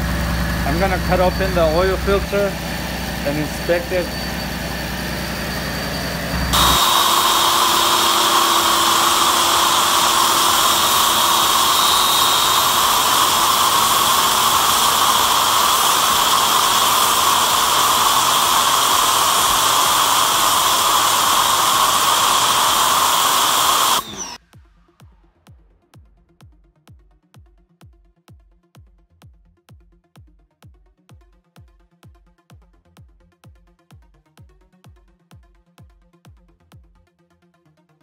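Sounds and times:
pressure washer spraying: 6.6s - 24.4s.

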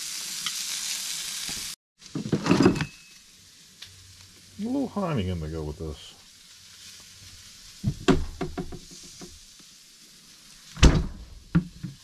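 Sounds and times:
faint food sizzle: 0.0s - 12.0s
kitchen items knocking: 7.9s - 8.8s.

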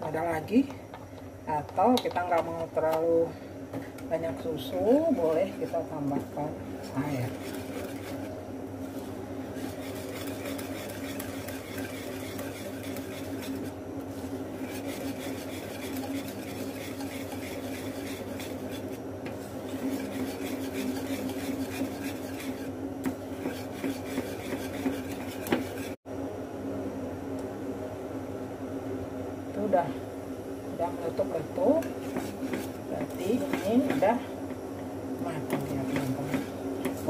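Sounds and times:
whisk scraping metal saucepan: 4.8s - 8.4s, 9.0s - 26.0s, 31.8s - 34.2s, 35.5s - 37.0s.

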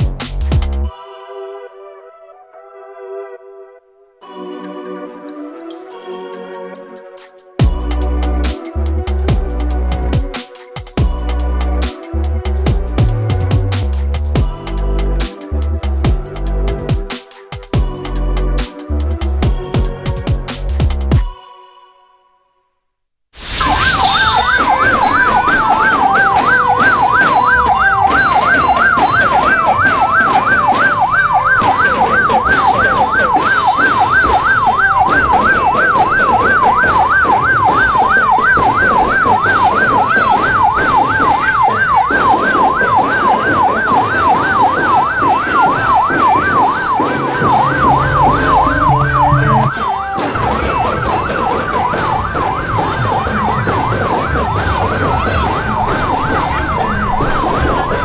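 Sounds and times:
electronic siren warbling: 23.4s - 58.0s.

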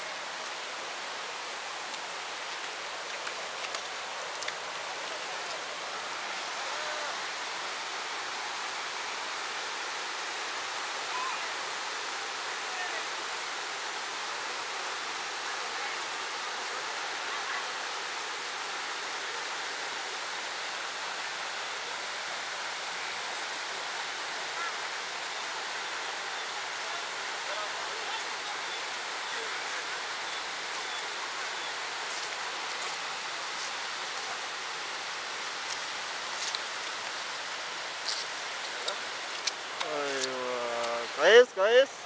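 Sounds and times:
river rapids rushing: 0.0s - 42.0s.

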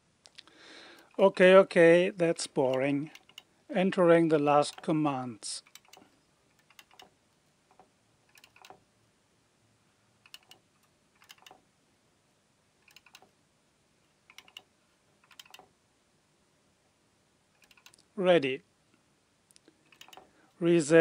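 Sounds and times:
keypad keys clicking: 2.6s - 3.5s, 5.6s - 8.8s, 10.3s - 10.6s, 11.2s - 11.6s, 12.8s - 13.3s, 14.3s - 15.7s, 17.6s - 18.0s, 19.9s - 20.3s.

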